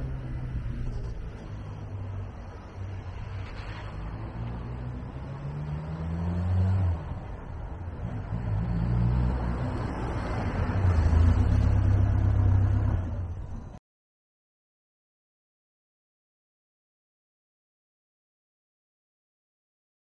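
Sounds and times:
car engine accelerating: 0.0 - 13.8.

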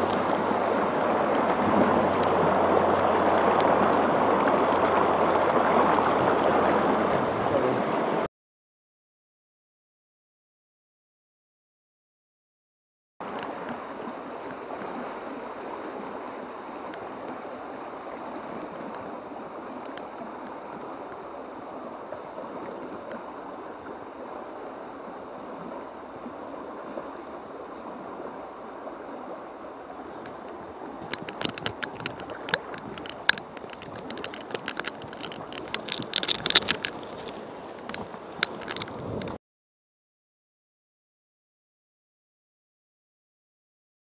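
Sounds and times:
crackling clicks and rustles: 0.0 - 2.5, 19.8 - 20.5, 30.1 - 39.4
river water splashing over stones: 0.0 - 8.3, 13.2 - 39.4.

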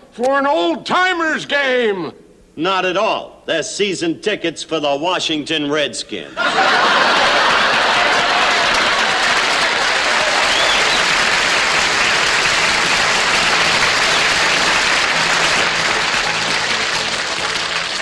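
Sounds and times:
studio audience applauding: 6.5 - 18.0.

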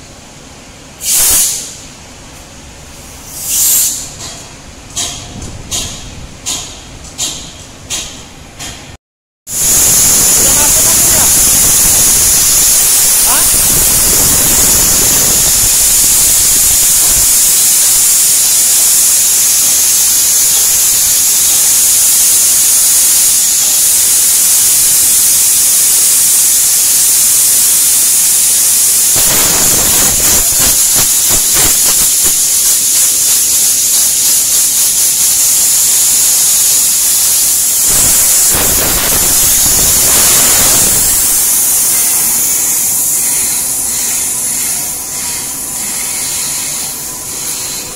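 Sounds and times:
compressed air hissing into tyre: 1.0 - 1.9, 3.0 - 4.2, 9.5 - 47.9.

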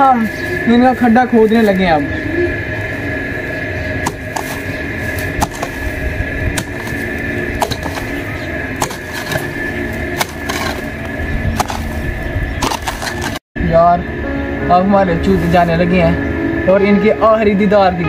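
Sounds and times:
hoe chopping into hard soil: 5.2 - 5.9, 6.5 - 8.2, 8.8 - 9.5, 10.2 - 10.9, 11.6 - 12.0, 12.6 - 13.4.

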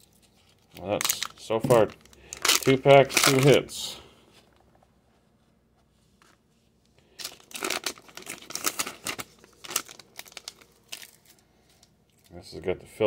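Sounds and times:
foil wrapper tearing and crinkling: 0.7 - 3.7, 7.1 - 11.4.

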